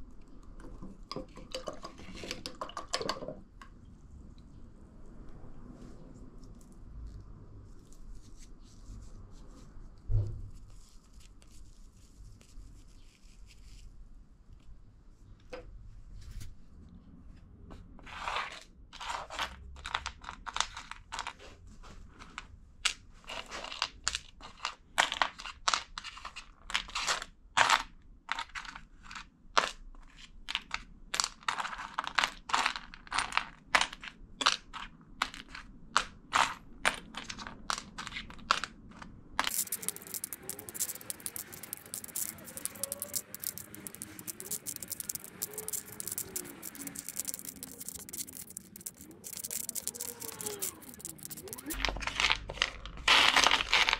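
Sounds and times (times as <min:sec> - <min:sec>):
hissing scrape with fine clicks: 0:39.5 - 0:51.8.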